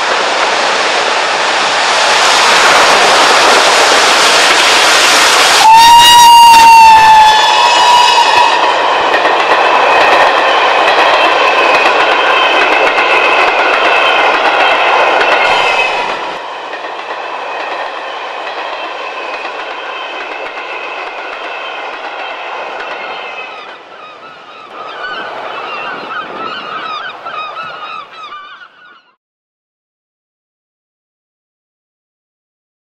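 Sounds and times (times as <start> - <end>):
train wheels clattering: 7.5 - 23.8.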